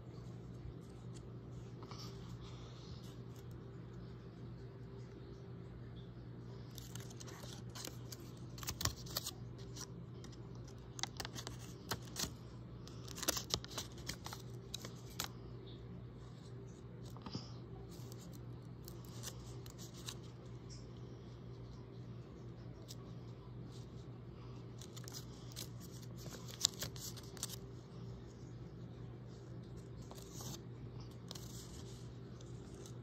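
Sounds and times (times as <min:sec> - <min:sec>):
steady low hum: 0:00.0 - 0:33.0
paper crackling and rustling: 0:06.5 - 0:15.5, 0:16.2 - 0:33.0.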